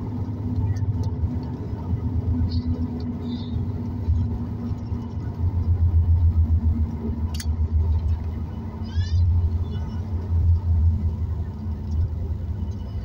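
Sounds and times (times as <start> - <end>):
airplane cabin rumble while taxiing: 0.0 - 13.0
sharp click: 7.3 - 7.6.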